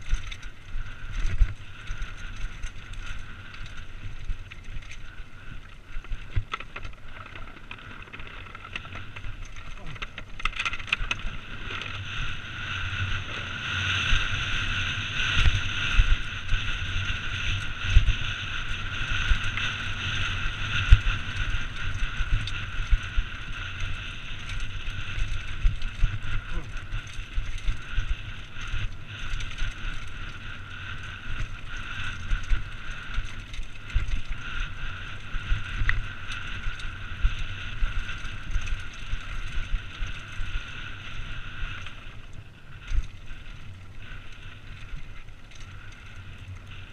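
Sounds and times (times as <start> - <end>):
bike tyres rumbling on rocks: 0.0 - 46.9
wind on microphone: 0.0 - 46.9.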